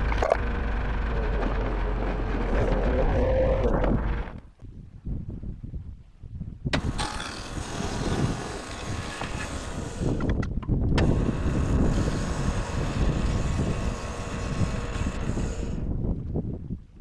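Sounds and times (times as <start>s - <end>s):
sawmill engine running: 0.0s - 4.4s, 6.8s - 10.4s, 11.0s - 15.9s
band blade cutting log: 6.8s - 15.9s.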